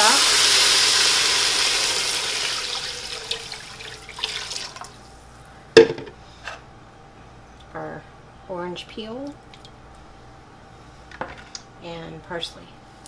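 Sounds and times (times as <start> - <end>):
liquid pouring into a pot: 0.2 - 5.0
sharp knock: 5.8 - 6.2.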